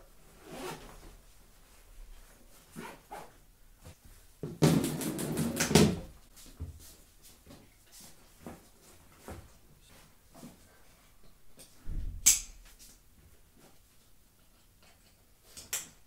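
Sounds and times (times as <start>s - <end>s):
backpack rustling: 0.4s - 1.1s.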